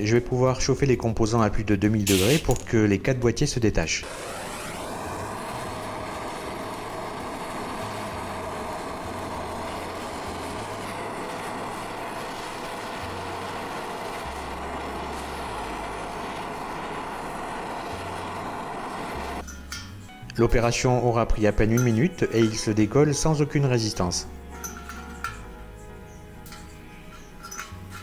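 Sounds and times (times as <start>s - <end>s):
torch flame rushing: 4.0s - 19.4s.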